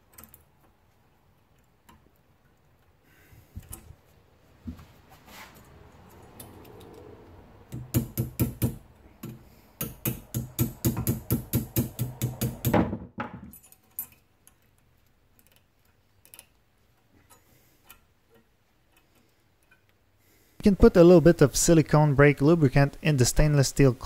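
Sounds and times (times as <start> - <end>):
metallic clicking and clinking: 0.0 - 3.0, 13.4 - 20.1
faint metal ticks: 13.6 - 20.2.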